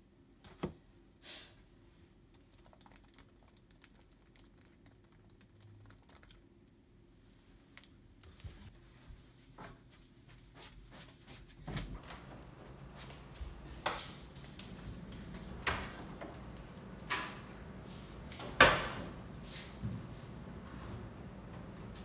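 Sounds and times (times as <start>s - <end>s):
typing on a laptop keyboard: 2.3s - 6.4s.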